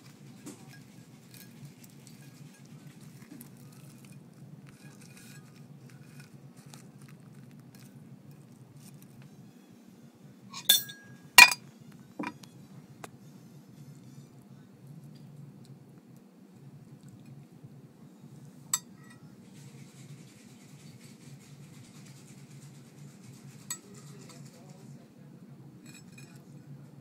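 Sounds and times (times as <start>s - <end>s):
cutlery scraping on a plate: 0.4s - 6.8s, 10.6s - 11.6s, 12.2s - 12.5s, 25.8s - 26.5s
sharp cutlery clinks: 10.6s - 11.6s.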